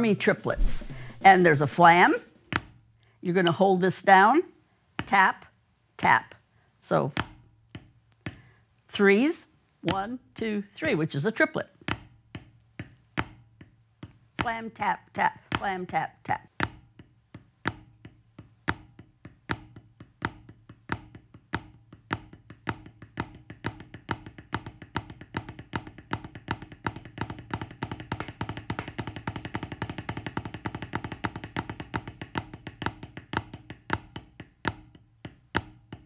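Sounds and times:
drumsticks tapping practice pad: 11.9s - 36.0s.

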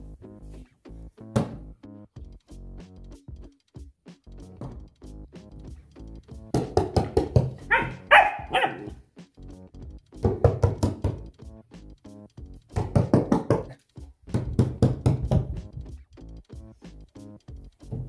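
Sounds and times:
background music: 0.0s - 18.0s
puppy barking: 7.6s - 9.0s.

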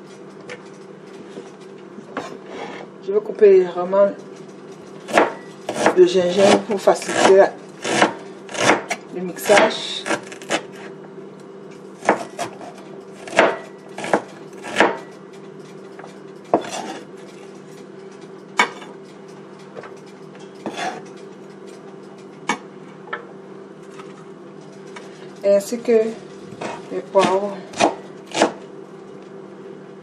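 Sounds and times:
steady low hum: 0.0s - 30.0s
knife chopping on cutting board: 5.1s - 10.9s, 12.0s - 15.1s, 16.5s - 17.0s, 20.7s - 21.0s, 26.6s - 28.6s.

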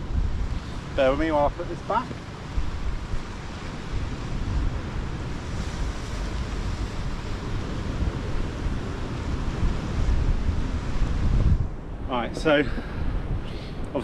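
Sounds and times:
surf on rocks: 0.0s - 14.0s
wind buffeting microphone: 0.0s - 14.0s.

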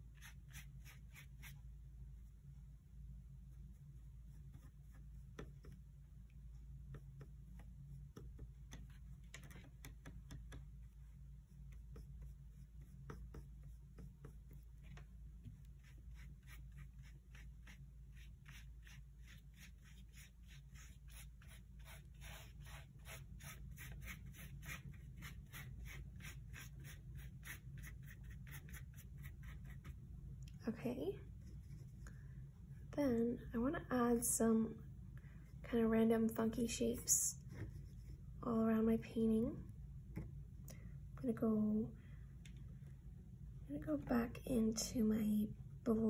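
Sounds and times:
paintbrush scrubbing on paper: 0.0s - 2.4s, 3.4s - 5.8s, 10.8s - 30.0s.

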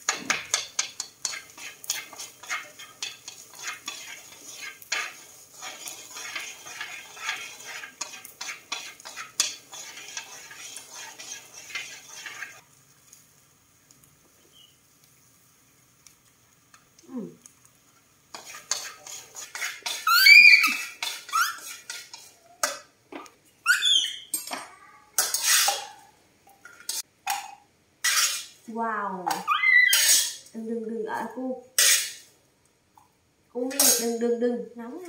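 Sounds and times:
corn stirred in a metal wok: 0.0s - 12.6s, 17.4s - 22.9s, 25.2s - 26.0s, 28.0s - 28.6s, 29.3s - 30.5s, 31.8s - 32.3s, 33.6s - 34.2s
short squeaky sounds: 20.0s - 21.6s, 23.6s - 24.3s.

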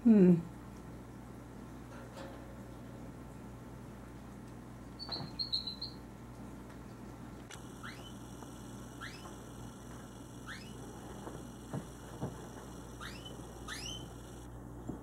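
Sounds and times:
canary call notes: 5.0s - 6.0s, 7.7s - 8.2s, 8.9s - 9.4s, 10.4s - 10.9s, 12.9s - 14.3s.

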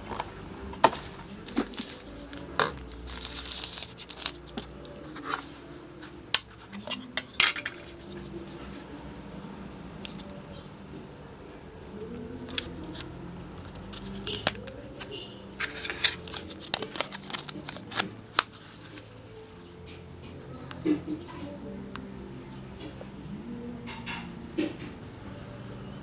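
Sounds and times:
packaging crinkling: 0.0s - 5.5s, 12.0s - 19.2s.

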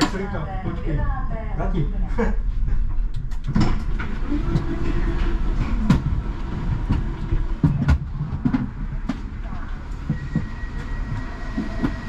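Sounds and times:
steady hum: 0.0s - 12.0s
tram rumbling on rails: 0.0s - 12.0s
track knocks and clicks: 3.0s - 12.0s.

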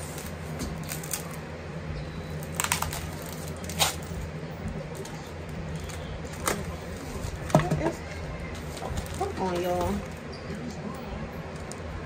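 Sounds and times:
steady low hum: 0.0s - 12.0s
paper crackling and rustling: 2.4s - 7.6s, 8.5s - 10.2s.

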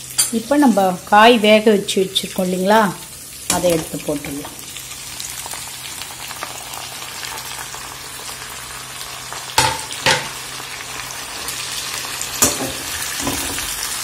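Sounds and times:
vegetables sizzling in oil: 0.0s - 14.0s
metal spoon knocking pan: 9.6s - 10.4s.

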